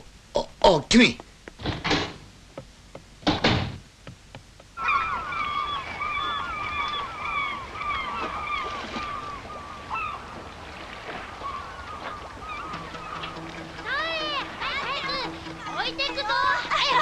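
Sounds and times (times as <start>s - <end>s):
steady background hiss: 0.0s - 17.0s
thump: 3.2s - 3.8s
seagulls crying: 4.8s - 17.0s.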